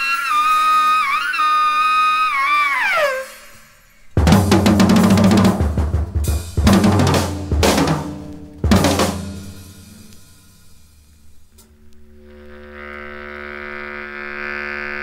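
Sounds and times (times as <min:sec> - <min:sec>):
drum fills: 0:04.2 - 0:11.1
crashing cymbals: 0:04.3 - 0:11.5
low sustained note: 0:09.6 - 0:15.0.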